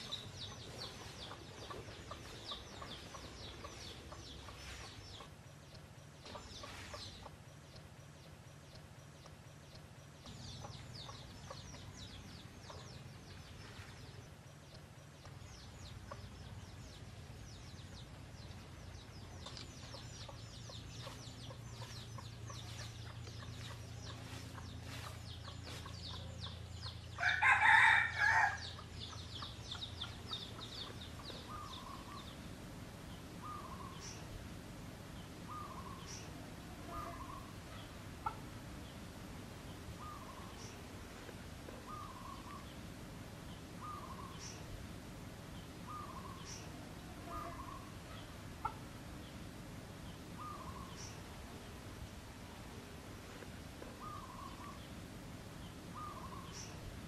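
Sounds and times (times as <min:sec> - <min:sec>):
rooster crowing: 0:27.2 - 0:28.8.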